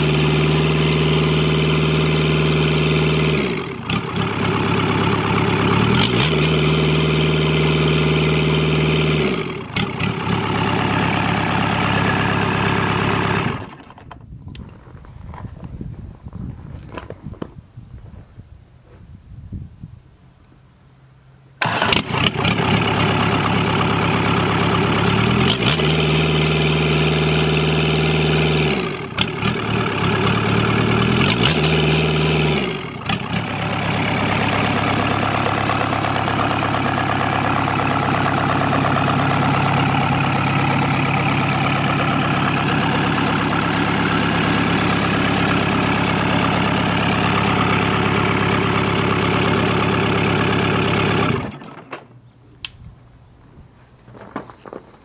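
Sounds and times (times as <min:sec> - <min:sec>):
diesel engine revving and idling: 0:00.0 - 0:14.1, 0:21.6 - 0:51.8.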